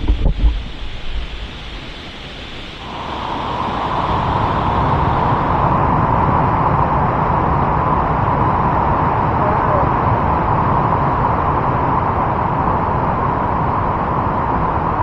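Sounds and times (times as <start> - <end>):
thumps on microphone: 0.0 - 0.6
rushing waterfall: 0.0 - 6.4.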